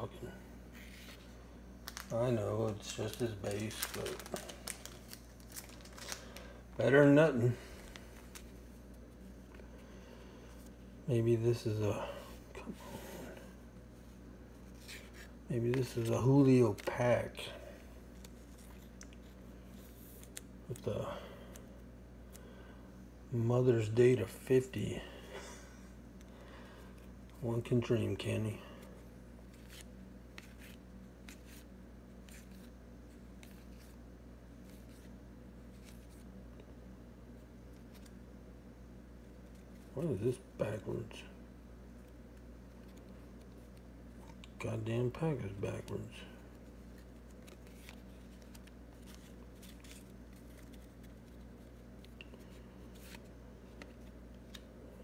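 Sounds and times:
faint low hum: 0:00.0 - 0:55.0
paper cards rustling and clicking: 0:00.8 - 0:06.5, 0:07.7 - 0:09.6, 0:14.5 - 0:20.9, 0:28.8 - 0:34.0, 0:34.6 - 0:36.7, 0:37.3 - 0:38.2, 0:42.0 - 0:44.6, 0:45.4 - 0:54.8.

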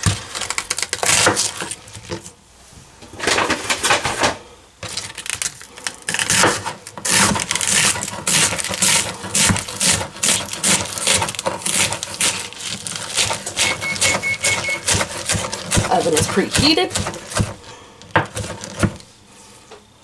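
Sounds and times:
knife cutting on cutting board: 0:06.2 - 0:17.6.

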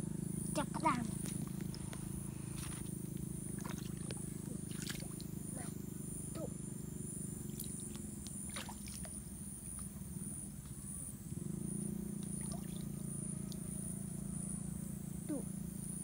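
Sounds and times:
low motor drone: 0:00.0 - 0:16.0
feet splashing in water: 0:02.5 - 0:05.3, 0:07.6 - 0:09.2, 0:12.4 - 0:12.8.

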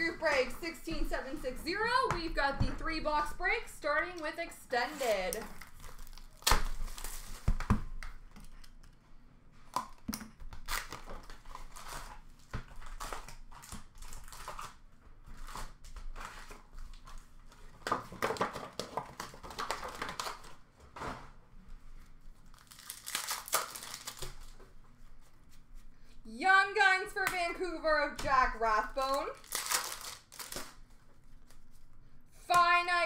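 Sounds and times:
wrappers tearing and crinkling: 0:04.8 - 0:07.5, 0:10.6 - 0:17.4, 0:22.4 - 0:24.6, 0:29.0 - 0:30.9.

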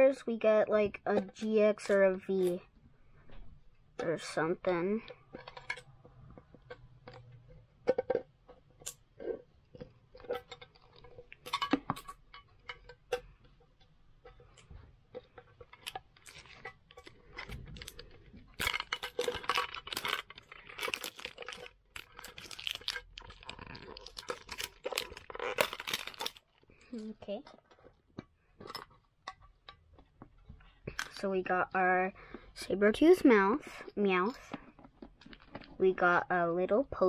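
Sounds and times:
plastic wrapping crinkling and tearing: 0:14.2 - 0:29.2, 0:34.6 - 0:35.8.

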